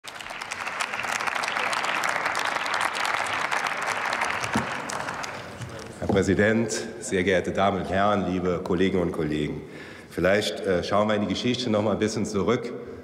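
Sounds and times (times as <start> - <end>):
crowd applauding: 0.0 - 6.1.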